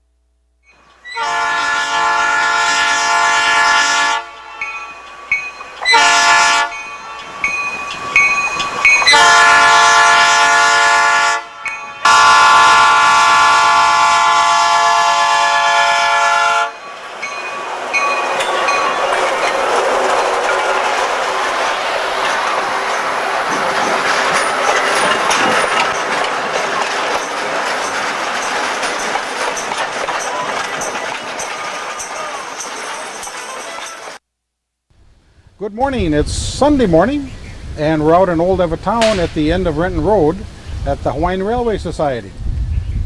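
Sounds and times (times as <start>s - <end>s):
locomotive passing by: 0.7s - 34.2s
locomotive air horn blasts: 1.1s - 4.7s, 5.8s - 6.8s, 9.0s - 16.9s.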